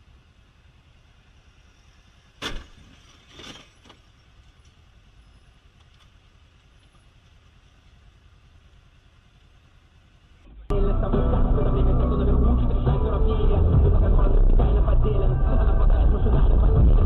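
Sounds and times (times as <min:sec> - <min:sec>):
car road noise: 0:00.0 - 0:17.0
car collision bang: 0:02.4 - 0:03.0.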